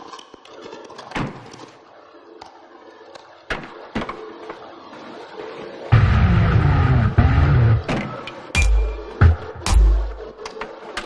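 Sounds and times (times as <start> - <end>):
sharp knocks: 8.6 - 10.3.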